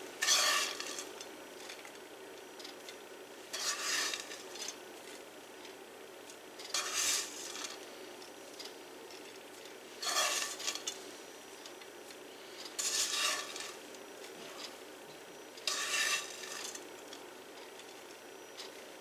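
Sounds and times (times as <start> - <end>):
spoon scraping skillet: 0.2 - 1.9, 2.7 - 4.8, 6.6 - 7.9, 9.9 - 11.1, 12.4 - 14.8, 15.6 - 17.0.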